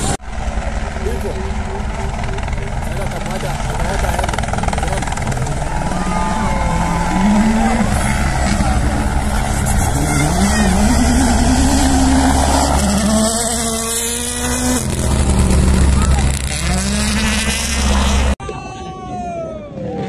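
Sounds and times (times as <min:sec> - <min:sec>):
steady low rumble: 0:00.0 - 0:18.4
rally car engine revving hard: 0:05.8 - 0:18.4.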